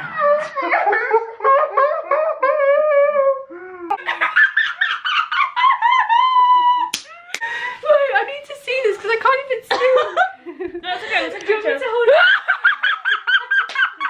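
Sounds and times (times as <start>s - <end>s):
girls laughing: 3.9s - 8.1s, 9.7s - 14.0s.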